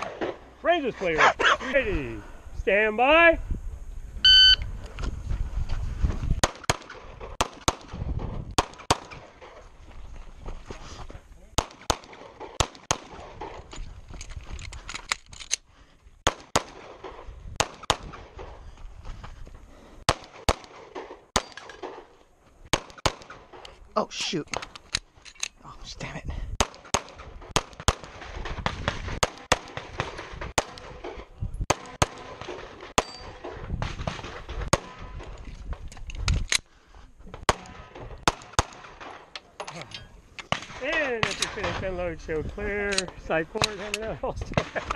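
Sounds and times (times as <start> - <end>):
pistol shots: 20.1 - 22.1, 26.6 - 31.1, 31.7 - 35.1, 37.5 - 39.2.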